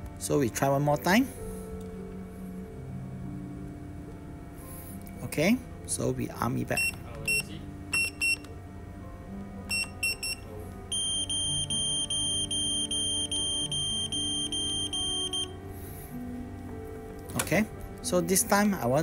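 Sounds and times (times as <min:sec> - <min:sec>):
keypad key beeps: 0:06.8 - 0:08.5, 0:09.7 - 0:15.5
rapid countdown beeping: 0:09.7 - 0:15.5.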